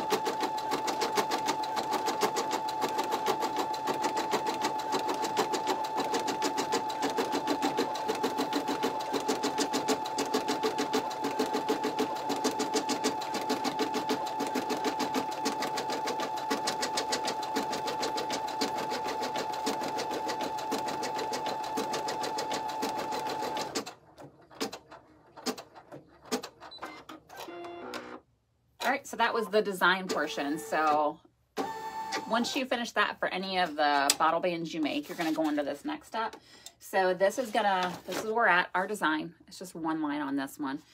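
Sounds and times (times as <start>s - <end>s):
embroidery machine stitching: 0.0s - 28.2s.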